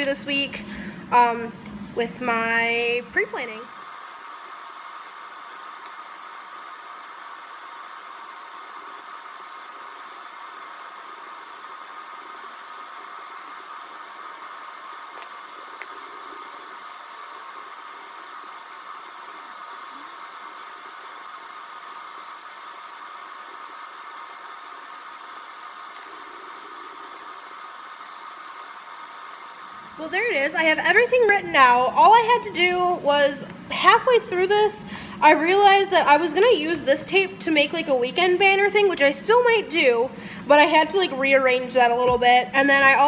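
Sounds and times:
faint hum: 0:00.0 - 0:43.0
steady hiss: 0:02.8 - 0:31.4.

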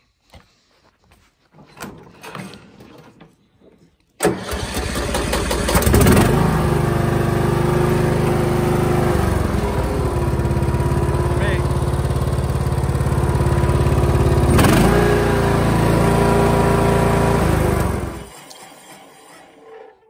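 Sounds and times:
lawn mower engine starting and running: 0:04.2 - 0:20.0.

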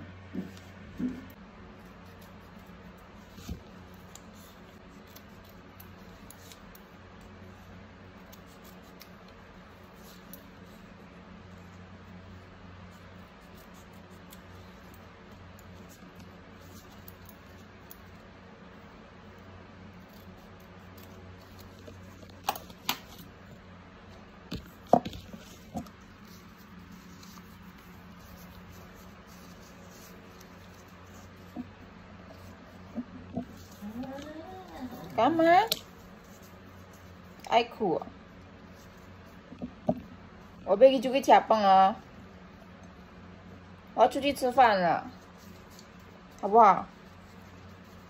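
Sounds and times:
steady low hum: 0:00.0 - 0:48.0.

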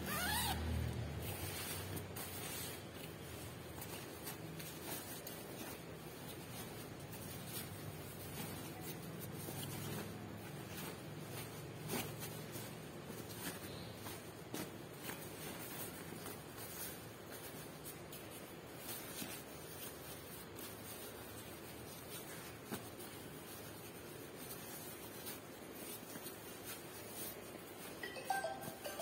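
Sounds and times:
zipper opening: 0:00.0 - 0:01.5
nylon jacket rustling: 0:00.0 - 0:29.0.

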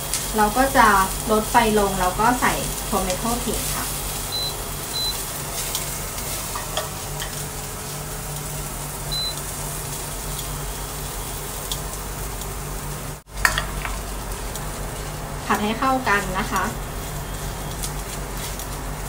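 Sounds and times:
vegetables sizzling in a frying pan: 0:00.0 - 0:19.0
short high beeps: 0:04.3 - 0:05.2, 0:09.1 - 0:09.4.

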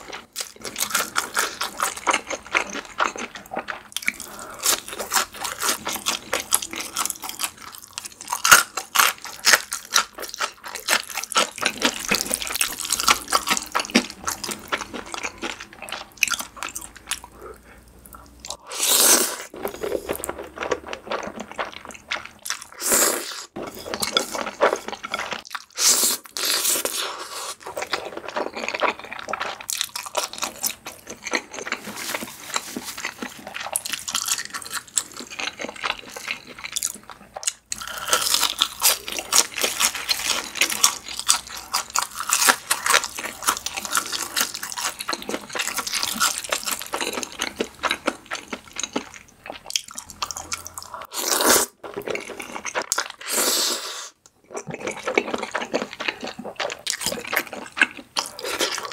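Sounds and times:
crunchy chewing: 0:00.0 - 0:58.9
wet chewing: 0:23.5 - 0:58.9
slurping spaghetti: 0:50.0 - 0:58.9.

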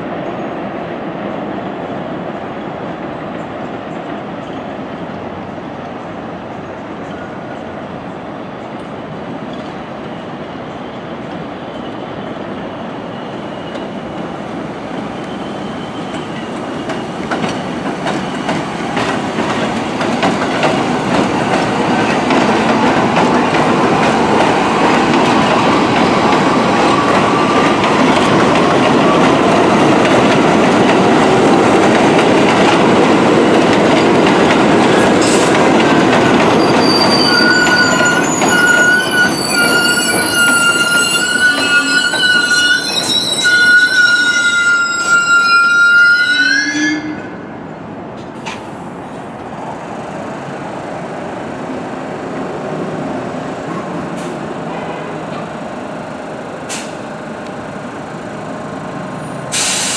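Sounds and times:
train wheels rumbling: 0:00.0 - 0:46.2
wheel squeal: 0:15.1 - 0:18.6, 0:36.5 - 0:47.2
rail clatter: 0:16.0 - 0:45.4.

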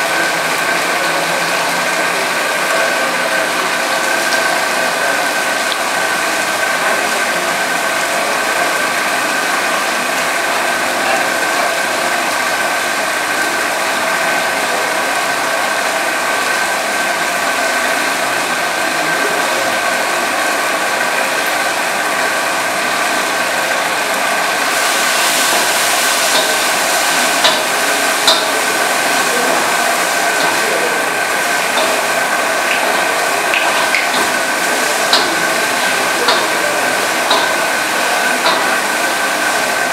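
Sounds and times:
kitchen fan motor whirring: 0:00.0 - 0:39.9
sizzling hiss from wok: 0:24.6 - 0:32.2.

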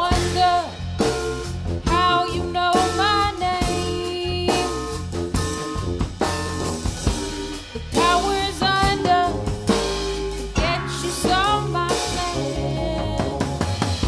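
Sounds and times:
drum kit: 0:00.0 - 0:14.0
upright bass: 0:00.0 - 0:14.0
person singing: 0:01.9 - 0:05.0, 0:08.0 - 0:09.5, 0:10.6 - 0:13.8.

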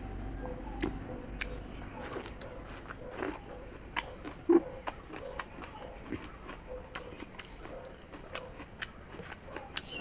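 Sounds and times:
crunchy chewing clicks: 0:00.5 - 0:10.0
wet chewing smacks: 0:00.8 - 0:10.0.

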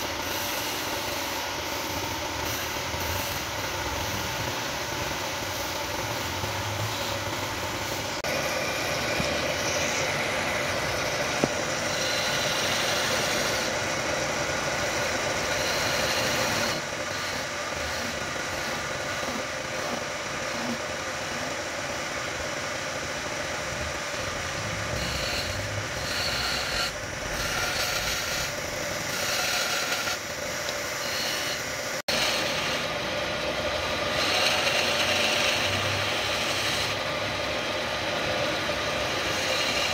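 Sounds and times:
chisel scraping spinning wood: 0:00.0 - 0:21.4, 0:24.5 - 0:39.9
lathe humming: 0:00.0 - 0:39.9.

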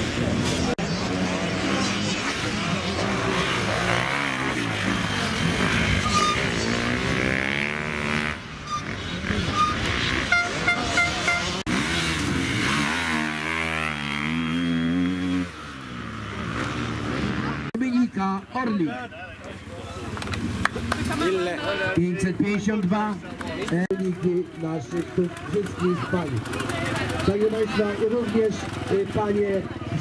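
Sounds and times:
motorcycle engines revving: 0:00.0 - 0:30.0
short high beeps: 0:06.0 - 0:06.5, 0:08.6 - 0:11.6.

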